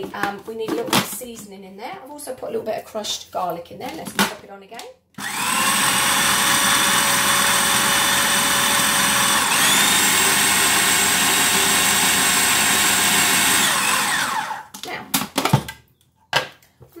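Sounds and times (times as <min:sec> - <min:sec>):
food processor motor whining: 0:05.2 - 0:14.7.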